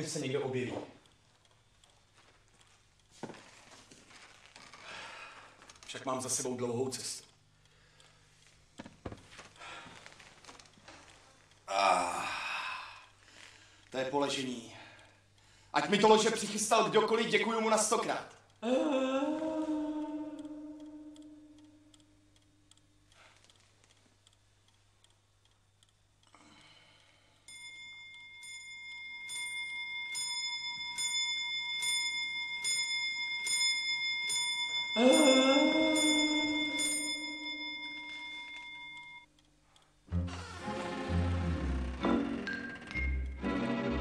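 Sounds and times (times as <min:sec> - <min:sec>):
eerie held tone: 0:18.6 - 0:21.9, 0:27.5 - 0:39.3
mantel clock striking: 0:27.5 - 0:39.3.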